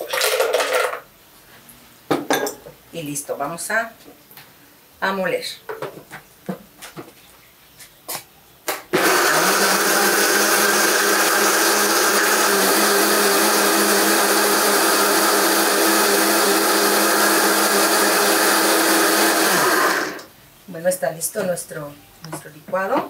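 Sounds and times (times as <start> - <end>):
blender running: 8.9 - 20.3.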